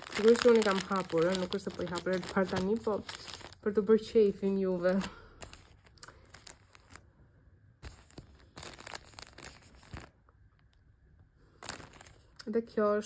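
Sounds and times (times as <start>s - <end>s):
plastic bag crinkling: 0.0s - 7.1s, 7.8s - 10.2s, 11.5s - 12.4s.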